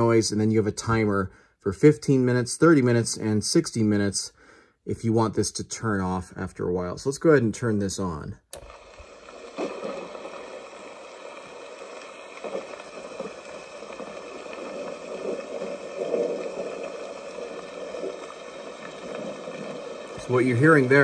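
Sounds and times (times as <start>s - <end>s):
recorded rain hiss: 0.0s - 1.2s, 8.1s - 21.0s.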